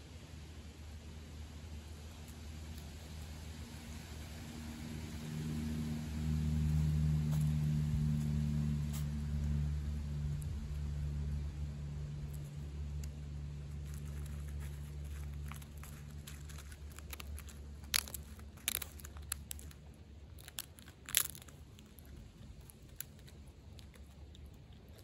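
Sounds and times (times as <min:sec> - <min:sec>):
steady low hum: 0:00.0 - 0:25.0
animal crunching nuts: 0:02.2 - 0:03.4, 0:06.6 - 0:25.0.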